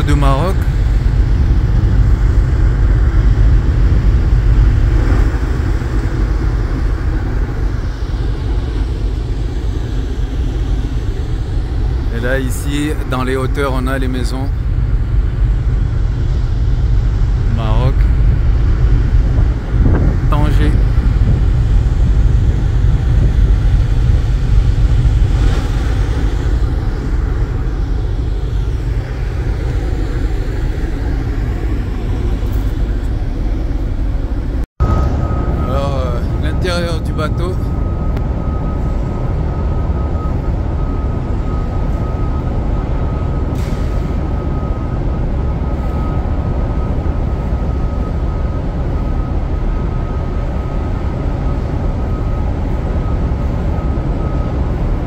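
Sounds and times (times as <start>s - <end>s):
wind buffeting microphone: 0.0s - 13.7s, 14.4s - 55.0s.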